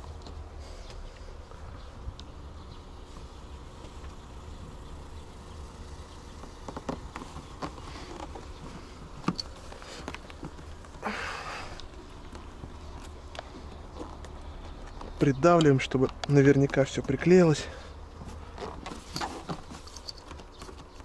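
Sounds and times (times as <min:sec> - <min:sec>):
steady low hum: 0:00.0 - 0:20.4
short rustle: 0:18.2 - 0:20.7.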